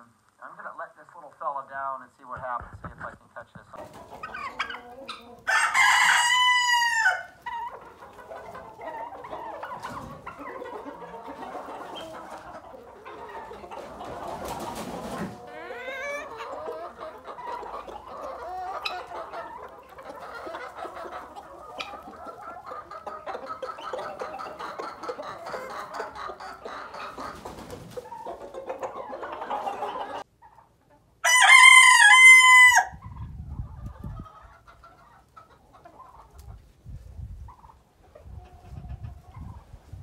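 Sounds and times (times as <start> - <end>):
chickens clucking: 0.0 - 40.0
rooster crowing: 5.5 - 7.4, 31.2 - 33.0.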